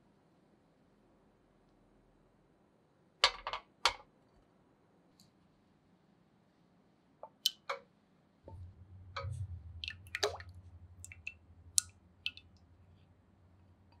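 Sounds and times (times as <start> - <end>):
drips and splashes: 7.2 - 7.7, 8.5 - 13.1
liquid pouring into water: 8.5 - 12.8.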